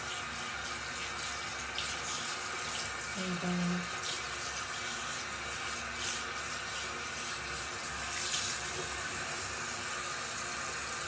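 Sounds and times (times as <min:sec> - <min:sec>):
tap water running into sink: 0:00.0 - 0:11.0.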